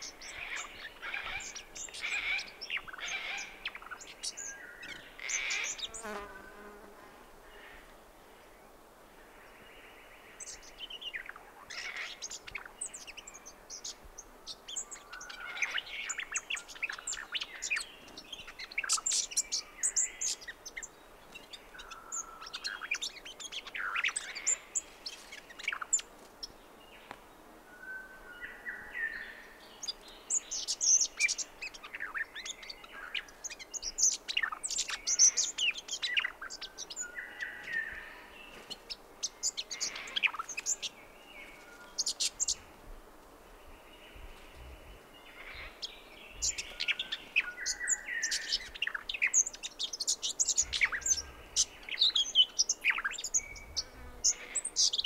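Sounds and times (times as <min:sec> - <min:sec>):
bird twittering song: 0:00.0 - 0:06.9, 0:09.4 - 0:27.2, 0:27.8 - 0:42.7, 0:43.5 - 0:55.0
other birds calling: 0:00.0 - 0:08.5, 0:29.1 - 0:42.8, 0:43.4 - 0:55.0.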